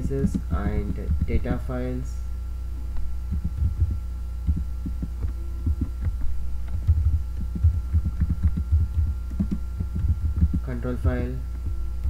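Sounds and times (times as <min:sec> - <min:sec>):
steady electrical hum: 0:00.0 - 0:12.0
keyboard keystrokes: 0:06.7 - 0:10.6.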